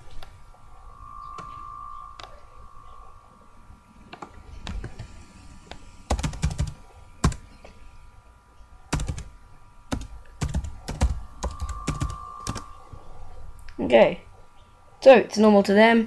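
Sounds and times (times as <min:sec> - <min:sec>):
computer keyboard typing: 0:06.1 - 0:07.4, 0:08.9 - 0:09.3, 0:09.9 - 0:12.7.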